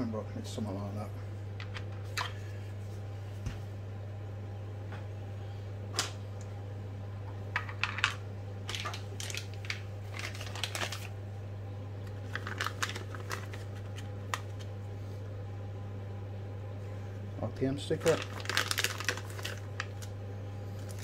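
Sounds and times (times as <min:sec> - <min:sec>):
steady low hum: 0:00.0 - 0:21.0
plastic bags crinkling: 0:07.8 - 0:11.2, 0:12.1 - 0:14.7, 0:18.0 - 0:21.0.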